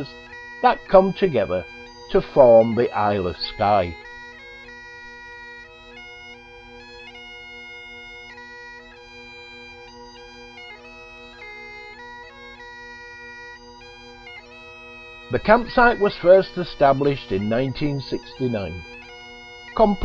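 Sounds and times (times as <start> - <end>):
bagpipe music: 0.0 - 20.0.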